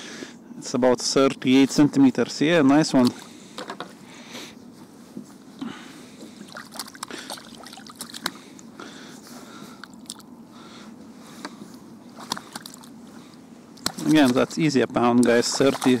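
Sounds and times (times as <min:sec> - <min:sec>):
hands handling fish in net: 0:06.2 - 0:08.7, 0:11.4 - 0:16.0
fish splashing in water: 0:06.5 - 0:08.5, 0:12.2 - 0:14.6, 0:15.2 - 0:16.0.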